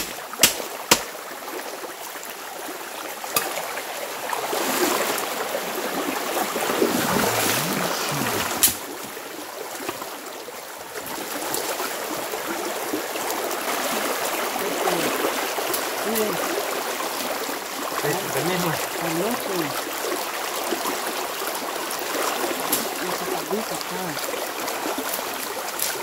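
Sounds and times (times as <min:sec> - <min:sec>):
creek water running: 0:00.0 - 0:26.0
low voices: 0:06.7 - 0:08.8, 0:16.0 - 0:16.4, 0:18.0 - 0:19.8, 0:23.0 - 0:24.2.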